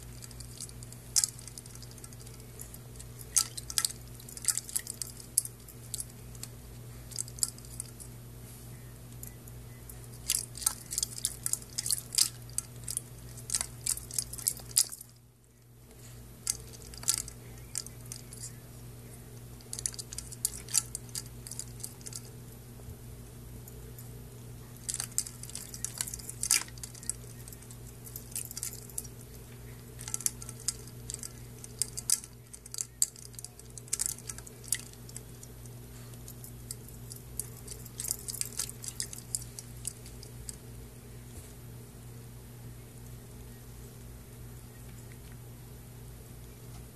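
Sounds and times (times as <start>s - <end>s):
ice cubes clinking in metal bowl: 10.1s - 15.1s, 19.6s - 22.2s, 24.8s - 29.2s, 30.0s - 35.4s, 36.7s - 40.4s.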